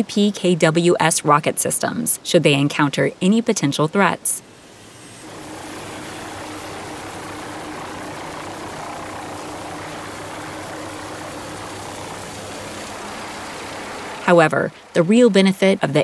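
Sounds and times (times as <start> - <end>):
helicopter hovering: 0.0 - 16.0
low hum: 4.8 - 16.0.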